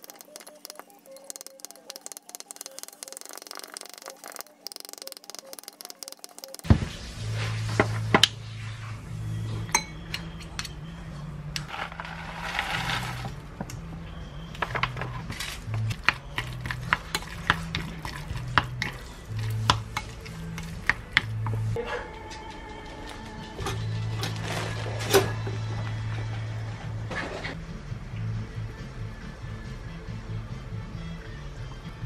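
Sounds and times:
cutlery clinking and scraping bowl: 0:14.6 - 0:22.0.

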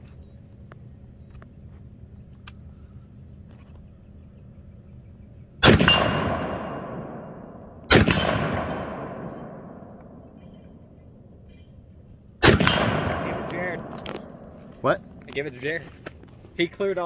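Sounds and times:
rifle shots echoing: 0:05.6 - 0:11.4, 0:12.4 - 0:15.4.

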